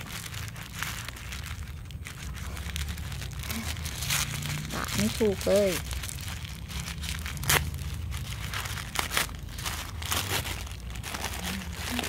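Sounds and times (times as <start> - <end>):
tissue paper crinkling: 0.0 - 12.0.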